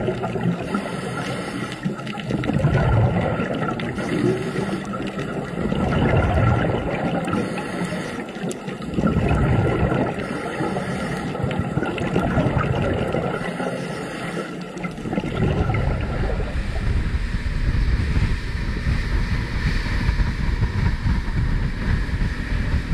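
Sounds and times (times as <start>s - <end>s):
boat motor rumble: 0.0s - 22.9s
underwater bubbling: 0.0s - 22.9s
wind buffeting microphone: 15.5s - 22.9s.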